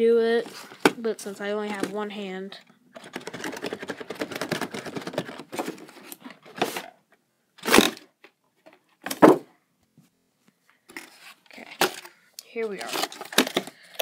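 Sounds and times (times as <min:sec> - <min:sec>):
cardboard crackling and rustling: 0:03.0 - 0:06.9, 0:10.9 - 0:13.7
cardboard ripping: 0:07.6 - 0:08.0.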